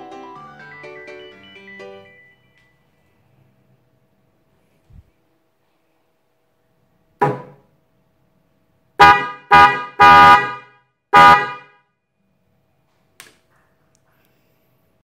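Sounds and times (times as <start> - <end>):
dual-tone horn honks: 9.0 - 11.9.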